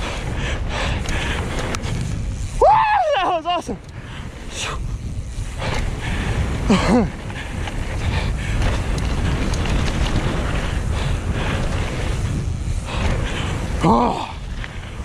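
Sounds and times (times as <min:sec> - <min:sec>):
bike tyres rumbling on dirt: 0:00.0 - 0:15.0
wind buffeting microphone: 0:00.0 - 0:15.0
person yelling: 0:02.6 - 0:03.8.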